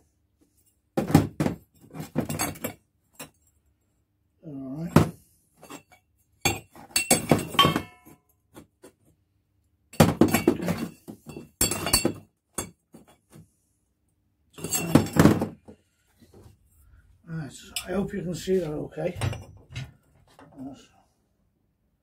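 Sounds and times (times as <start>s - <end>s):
metal tubes clinking and knocking: 1.7s - 3.5s, 5.6s - 8.3s, 9.9s - 13.3s, 14.6s - 15.6s, 17.6s - 18.1s, 19.1s - 20.4s.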